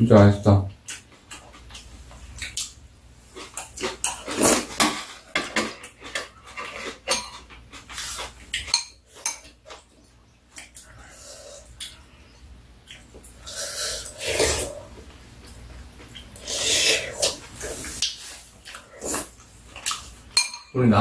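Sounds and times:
spoons and chopsticks on bowls: 0:04.9 - 0:09.8, 0:20.3 - 0:20.8
people eating mouth noises: 0:10.5 - 0:20.2.

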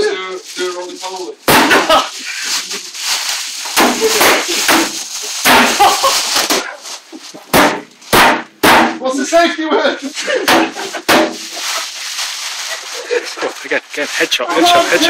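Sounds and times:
voices: 0:00.0 - 0:07.3, 0:11.6 - 0:15.0
plastic bottle smacks: 0:01.5 - 0:02.0, 0:03.6 - 0:06.7, 0:07.5 - 0:09.0, 0:10.5 - 0:11.5.

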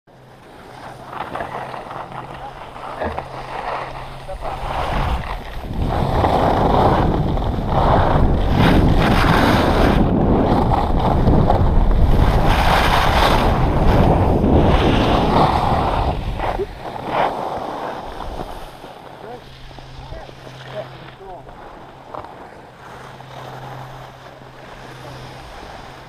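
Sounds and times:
skis scraping on snow: 0:00.1 - 0:26.0
wind buffeting microphone: 0:02.1 - 0:26.0.

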